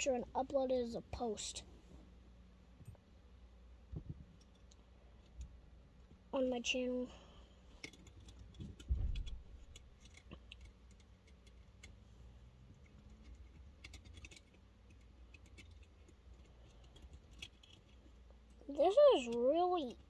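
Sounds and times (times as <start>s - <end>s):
plastic parts clicking: 7.7s - 12.0s, 12.8s - 18.0s.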